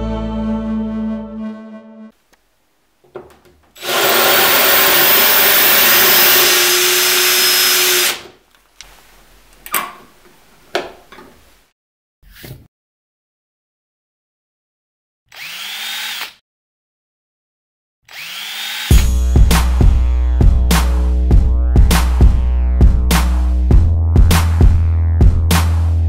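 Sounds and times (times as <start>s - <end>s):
drill motor whine: 3.8s - 8.2s, 15.3s - 16.3s, 18.1s - 19.0s
drill grinding into tile: 3.8s - 8.3s, 15.3s - 16.4s, 18.1s - 19.0s.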